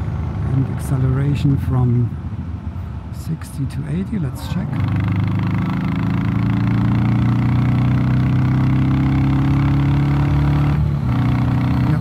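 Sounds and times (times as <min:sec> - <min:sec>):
motorcycle engine accelerating: 0:04.6 - 0:12.0.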